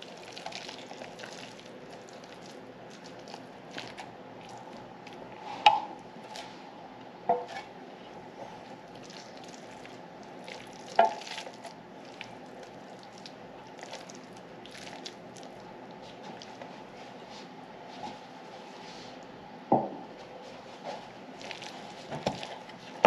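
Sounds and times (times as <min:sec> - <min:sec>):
spatula scraping meat mixture: 0:07.4 - 0:17.5, 0:21.4 - 0:23.0.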